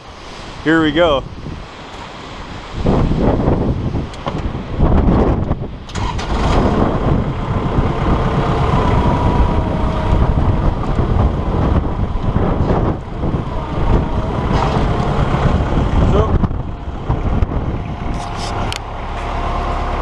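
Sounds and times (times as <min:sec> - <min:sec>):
wind buffeting microphone: 0:00.0 - 0:20.0
tractor diesel engine running: 0:05.7 - 0:20.0.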